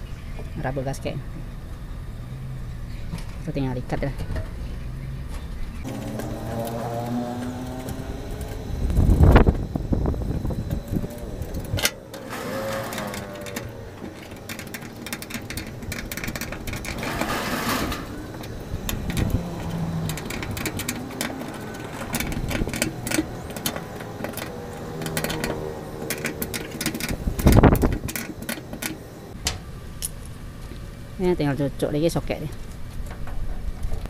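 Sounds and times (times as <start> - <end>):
socket ratchet clicking: 18.4 - 29.0.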